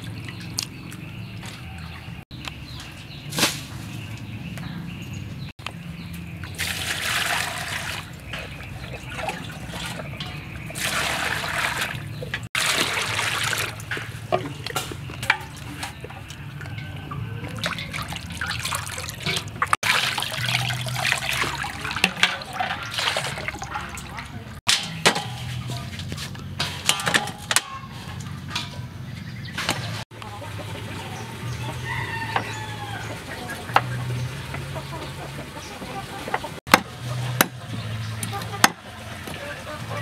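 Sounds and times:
water splashing and trickling: 0.0 - 4.4, 5.4 - 40.0
water poured from plastic bowl: 6.6 - 8.2, 10.8 - 14.1, 17.5 - 24.2.

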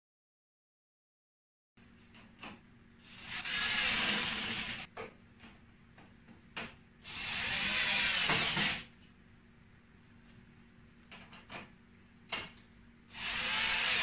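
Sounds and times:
cordless drill driving screws: 3.1 - 4.9, 7.0 - 8.9, 13.1 - 14.0.

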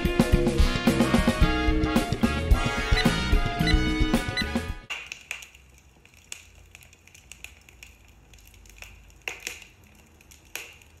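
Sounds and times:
wood fire crackling and popping: 4.7 - 11.0.

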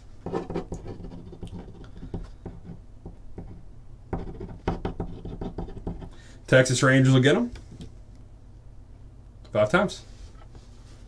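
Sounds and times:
light scratching at a desk: 0.2 - 2.8.

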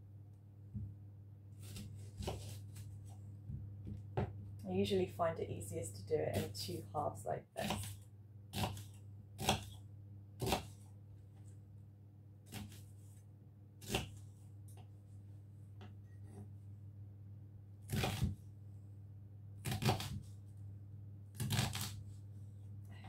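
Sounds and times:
knife chopping on wooden board: 1.6 - 2.6, 8.5 - 9.8, 10.4 - 10.8, 13.8 - 14.2, 19.6 - 20.3.

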